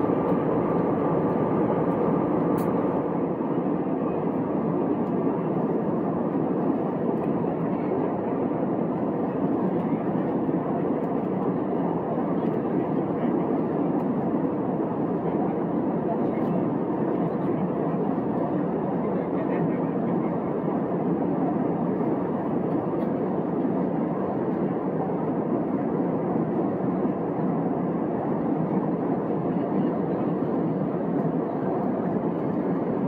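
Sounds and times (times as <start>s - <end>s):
airplane cabin engine and airflow noise: 0.0s - 33.0s.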